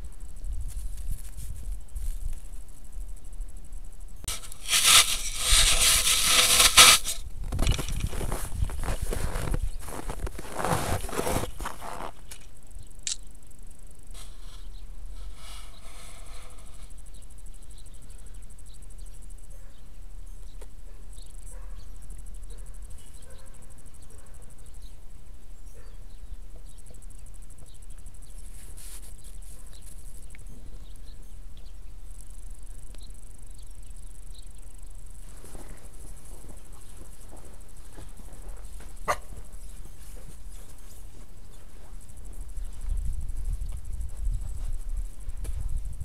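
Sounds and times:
sharp click: 0:13.0 - 0:13.3.

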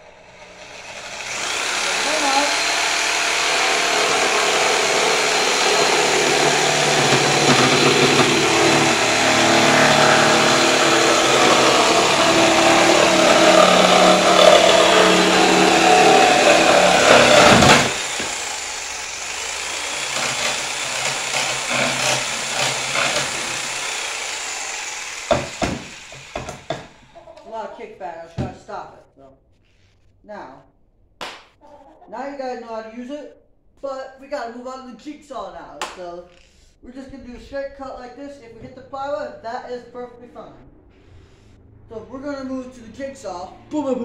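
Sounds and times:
reciprocating saw cutting wood: 0:00.0 - 0:26.7
knocks: 0:25.3 - 0:27.0.

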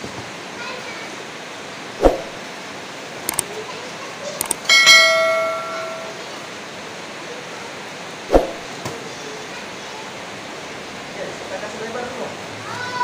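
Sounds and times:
heavy rain hissing: 0:00.0 - 0:04.4, 0:06.2 - 0:13.0
metal part clanking and ringing: 0:04.5 - 0:06.2.

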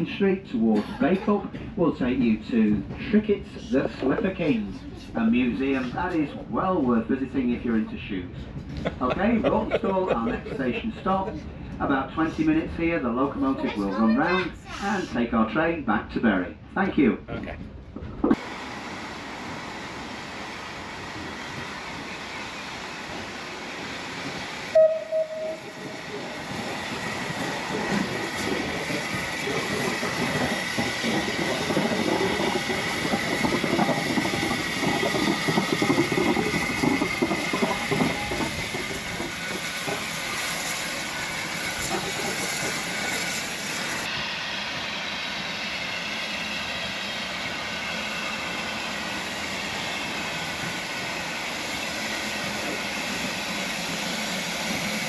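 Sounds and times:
steam locomotive rumble: 0:17.5 - 0:55.0.

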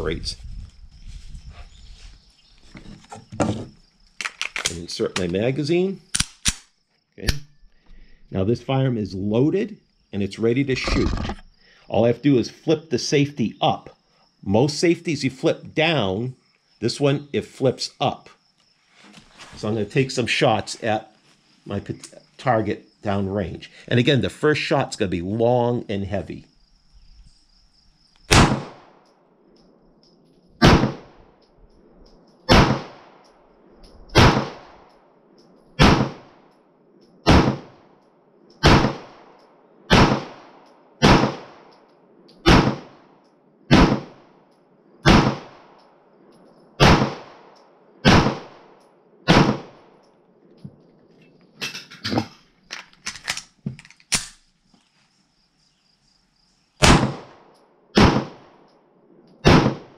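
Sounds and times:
crickets chirping: 0:00.0 - 0:59.9
metallic clicks and clatter: 0:04.1 - 0:05.4, 0:51.2 - 0:54.4
pistol shots echoing: 0:28.3 - 0:28.9, 0:32.5 - 0:33.2, 0:35.8 - 0:36.2, 0:37.3 - 0:37.7, 0:38.6 - 0:41.7, 0:42.4 - 0:43.0, 0:43.7 - 0:44.2, 0:46.8 - 0:48.7, 0:49.3 - 0:49.8, 0:56.8 - 0:57.4, 0:59.4 - 0:59.9.

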